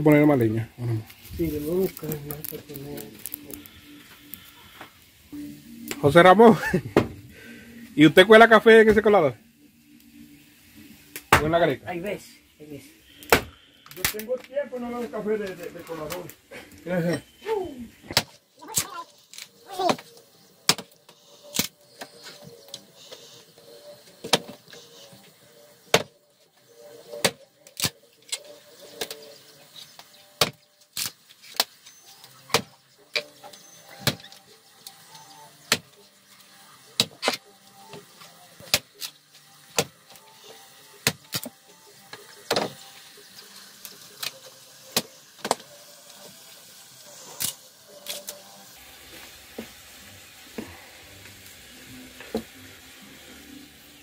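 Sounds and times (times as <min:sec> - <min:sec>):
wood cracking and snapping: 0:01.8 - 0:03.7.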